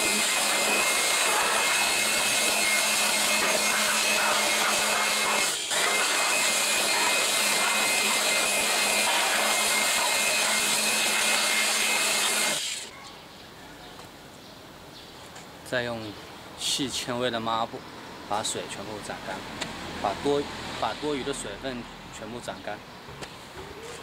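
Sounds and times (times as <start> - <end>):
electric dust blower running: 0.0 - 12.9.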